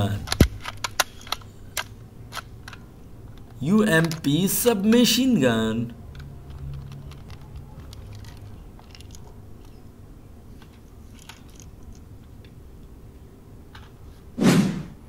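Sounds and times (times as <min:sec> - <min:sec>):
plastic toy gun clicks and rustles: 0:00.0 - 0:05.3, 0:05.9 - 0:09.8, 0:10.5 - 0:12.6.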